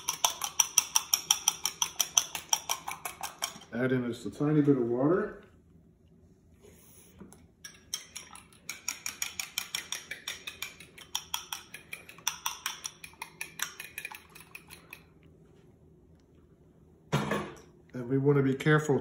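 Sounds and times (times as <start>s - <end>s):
utensil clinking against glass bowl: 0.0s - 3.7s, 7.6s - 15.1s.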